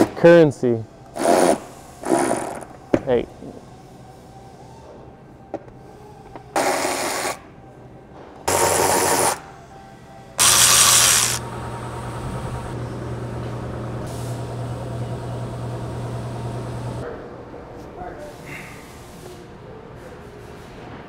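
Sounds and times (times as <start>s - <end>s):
low running hum: 9.5s - 17.9s
electric motor tool bursts: 10.4s - 12.8s.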